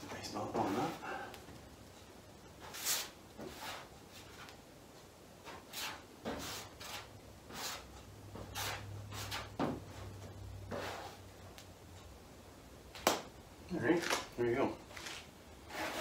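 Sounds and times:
spreader scraping filler on metal: 0:15.7 - 0:16.0.

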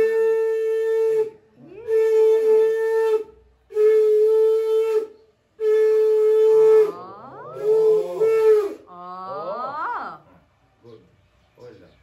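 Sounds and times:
conch shell blasts: 0:01.9 - 0:07.0.

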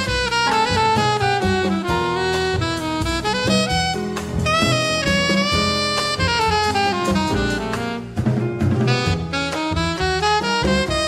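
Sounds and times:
alto saxophone jazz line: 0:00.0 - 0:11.0
bass: 0:00.0 - 0:11.0
drums: 0:00.0 - 0:11.0.

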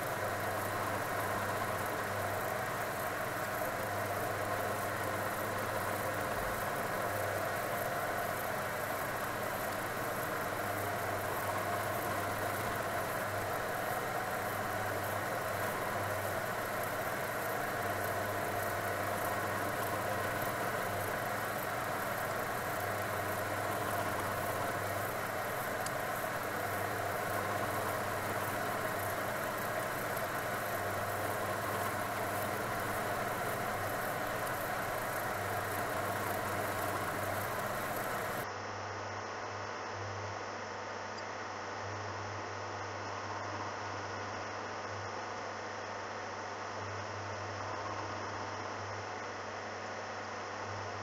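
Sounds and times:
milling machine humming: 0:00.0 - 0:38.5.

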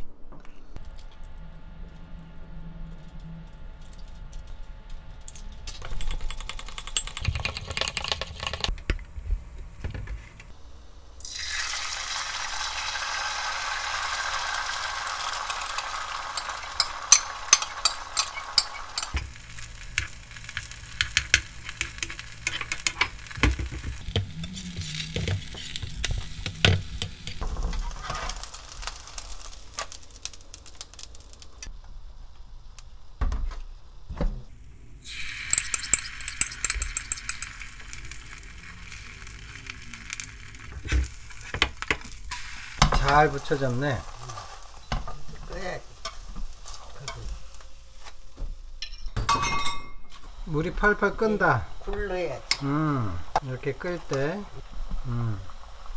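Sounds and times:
egg sizzling in frying pan: 0:11.2 - 0:31.7, 0:34.8 - 0:48.8, 0:53.3 - 0:55.9.

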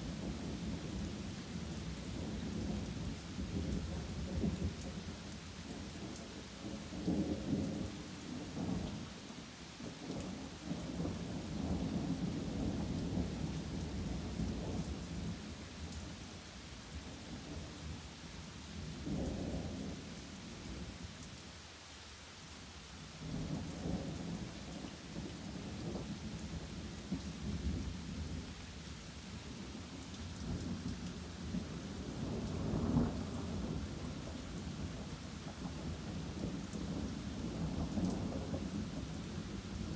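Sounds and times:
rain falling on trees: 0:00.0 - 0:39.9
thunder rumbling: 0:30.5 - 0:39.9.

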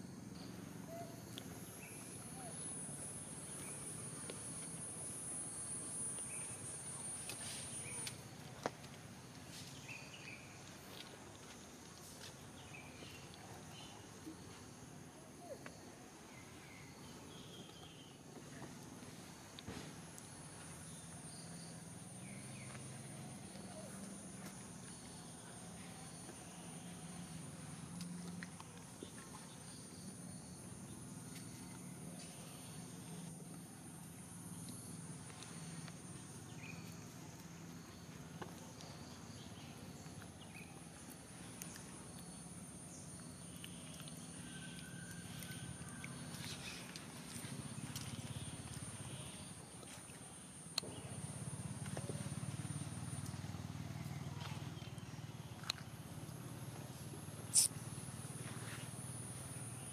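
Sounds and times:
short chirps: 0:57.5 - 0:57.7
high-pitched insect drone: 0:57.5 - 0:59.9.

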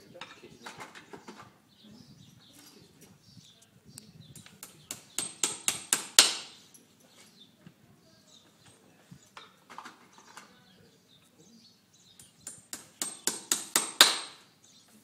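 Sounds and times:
hammer tapping horseshoe nails: 0:04.4 - 0:06.6, 0:12.2 - 0:14.4.

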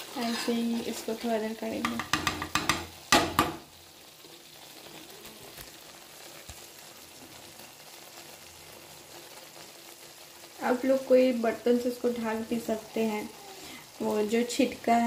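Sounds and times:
metal spoon scraping a pan: 0:00.0 - 0:01.2
cream sizzling in a pan: 0:00.0 - 0:15.0.

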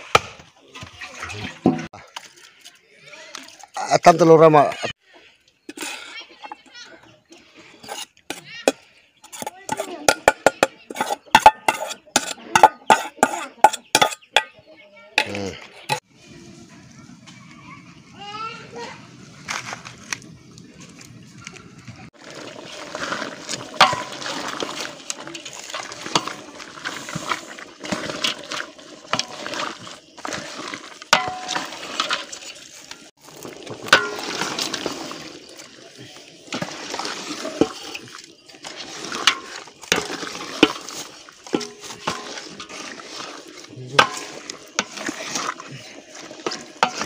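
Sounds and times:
stew simmering: 0:00.0 - 0:18.1, 0:20.0 - 0:47.0
stick scraping meat in pot: 0:07.7 - 0:14.6, 0:22.1 - 0:47.0.

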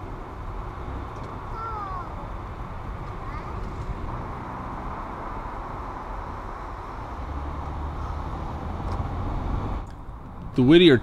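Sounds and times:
low engine rumble: 0:00.0 - 0:11.0
road and wind noise: 0:00.0 - 0:11.0.

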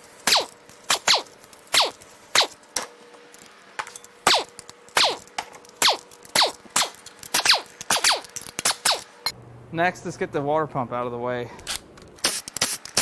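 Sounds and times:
pneumatic wrench bursts: 0:00.2 - 0:02.6, 0:04.2 - 0:09.1, 0:11.7 - 0:13.0.

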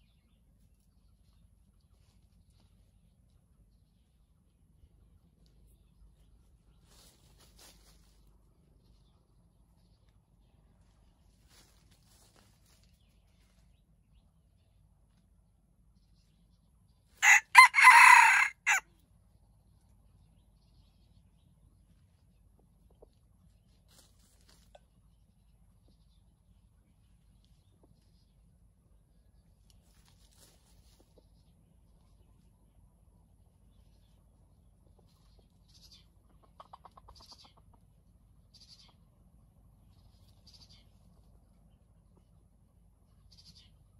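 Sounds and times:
rooster crowing: 0:17.2 - 0:18.8.

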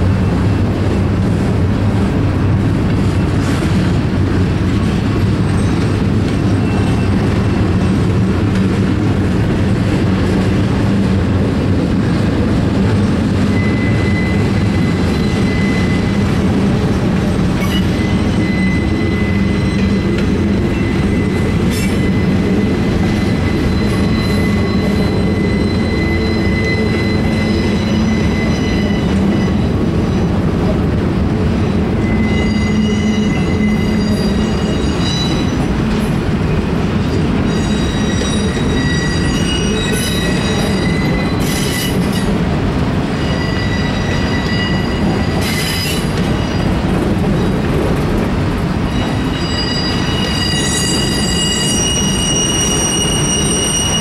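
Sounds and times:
train wheels rumbling on rails: 0:00.0 - 0:54.0
high-pitched wheel squeals: 0:13.4 - 0:30.4, 0:31.7 - 0:35.8, 0:36.5 - 0:42.4, 0:43.1 - 0:47.6, 0:48.8 - 0:54.0.

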